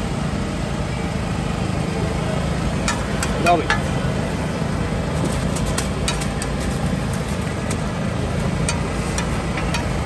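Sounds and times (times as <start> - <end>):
low engine-like drone: 0.0 - 10.0.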